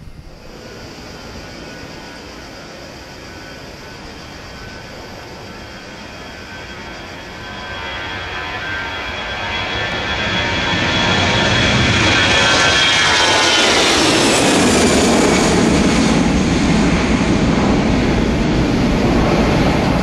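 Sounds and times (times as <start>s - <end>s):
high engine whine falling: 0.0s - 20.0s
jet airliner passing: 0.0s - 20.0s.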